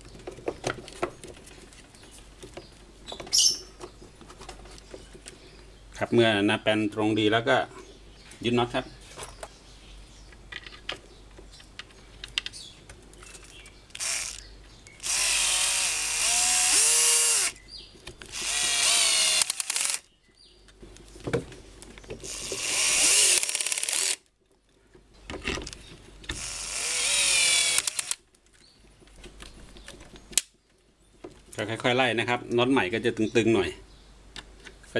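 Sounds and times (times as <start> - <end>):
electric drill-driver running bolts: 14.0 - 14.4, 15.0 - 17.6, 18.3 - 20.1, 22.3 - 24.2, 26.3 - 28.2.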